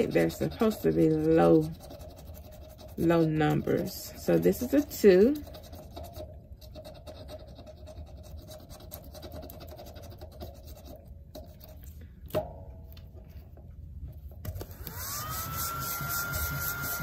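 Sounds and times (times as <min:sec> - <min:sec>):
pen scratching sticker: 0:00.0 - 0:11.8
loud rubbing: 0:14.9 - 0:17.0.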